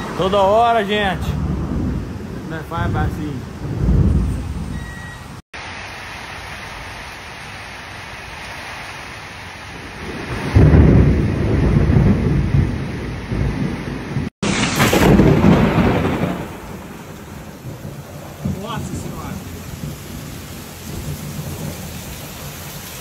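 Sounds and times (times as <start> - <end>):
low rumble of thunder: 0.0 - 5.2, 9.8 - 22.6
heavy rain: 0.0 - 23.0
strong wind: 0.0 - 23.0.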